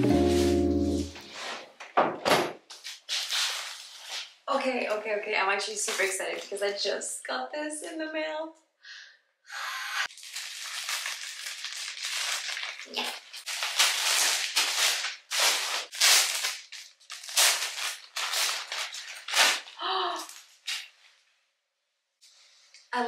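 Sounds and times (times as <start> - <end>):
plastic mailer bag tearing: 10.1 - 20.9
plastic bag crinkling: 10.1 - 21.0.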